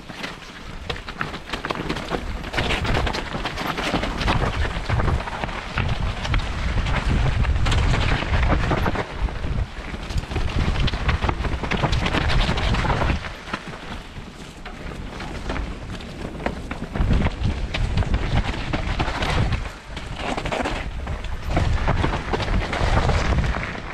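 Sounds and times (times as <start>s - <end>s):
bike tyres crunching on rocks: 0.0s - 23.9s
wind buffeting microphone: 0.0s - 23.9s.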